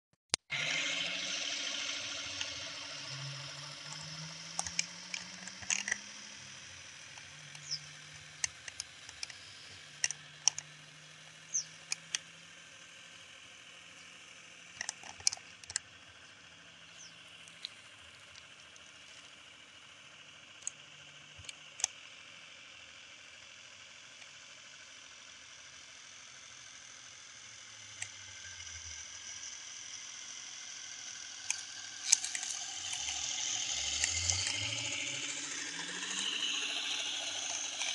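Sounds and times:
high chirps and clicks: 0.3s - 10.7s, 11.3s - 12.2s
model boat motor humming: 0.4s - 37.9s.

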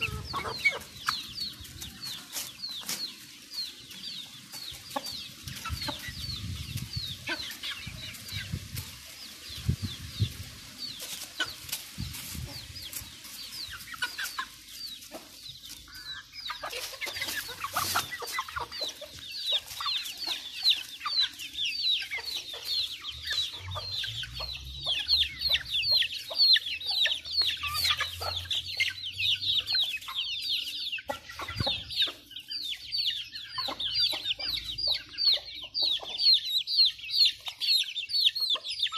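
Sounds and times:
beaks pecking grain: 0.0s - 29.0s
chicks peeping and clucking: 0.0s - 38.9s.

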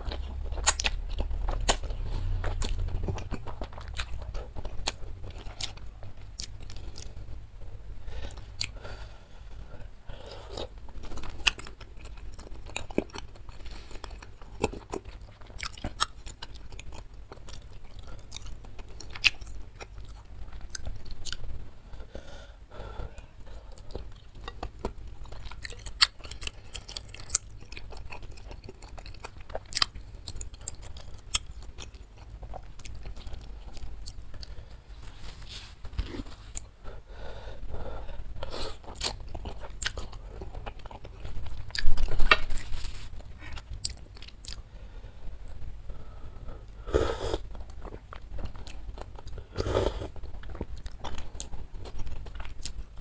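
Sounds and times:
person chewing with wet mouth clicks: 0.0s - 7.1s, 38.8s - 42.4s.

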